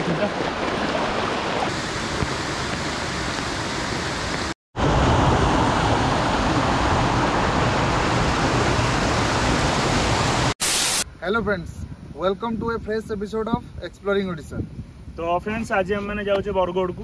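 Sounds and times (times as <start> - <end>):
stream rushing over boulders: 0.0 - 10.6.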